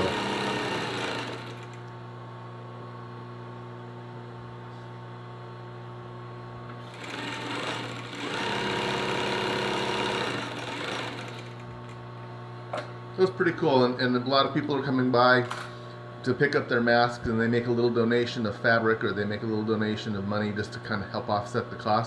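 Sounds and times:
sewing machine stitching: 0.0 - 1.8, 6.8 - 12.0
sewing machine motor humming: 0.0 - 1.9, 6.8 - 12.0.

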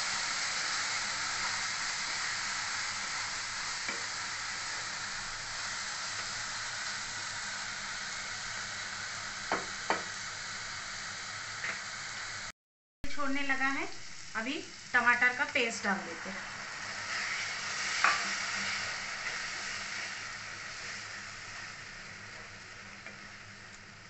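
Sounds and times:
onions sizzling in oil: 0.0 - 24.0
spatula knocking on pan: 9.5 - 10.1.

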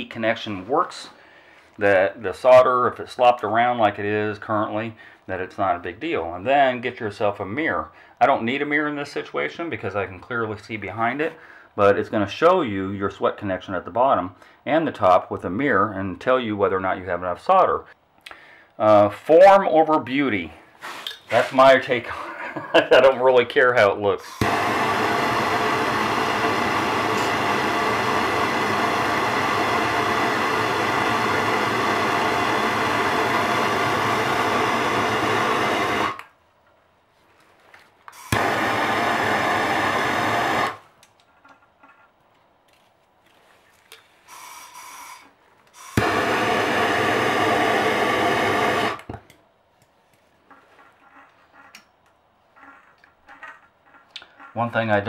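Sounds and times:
gas torch flame hissing: 24.2 - 36.3, 38.1 - 40.9, 44.3 - 49.2.

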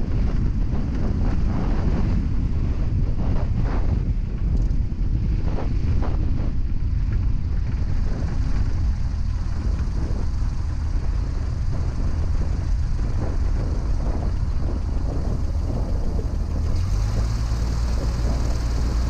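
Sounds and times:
light aircraft engine: 0.0 - 19.0
wheels rolling on rough ground: 0.0 - 19.0
wind rumble: 0.0 - 19.0.

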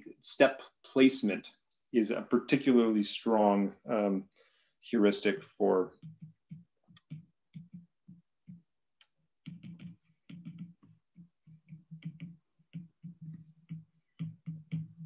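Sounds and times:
stylus tapping on tablet screen: 5.2 - 15.0.

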